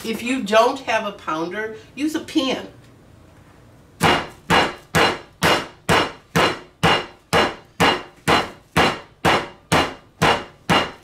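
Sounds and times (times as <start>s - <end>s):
meat mallet pounding: 4.0s - 11.0s.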